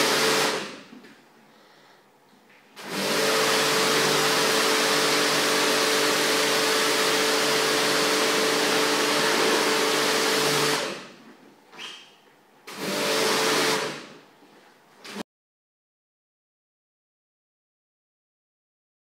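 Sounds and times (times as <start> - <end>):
rug-cleaning machine rushing: 2.8 - 11.1.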